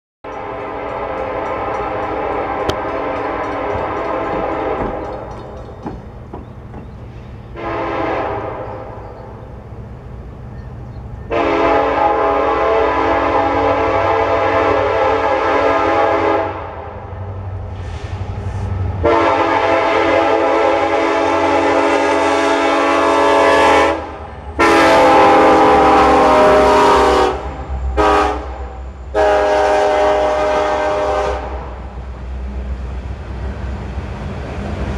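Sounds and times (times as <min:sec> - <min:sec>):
locomotive air horn blasts: 0:00.3 - 0:05.2, 0:07.5 - 0:09.0, 0:11.3 - 0:17.0, 0:19.0 - 0:31.8
diesel engines rumbling: 0:00.3 - 0:34.9.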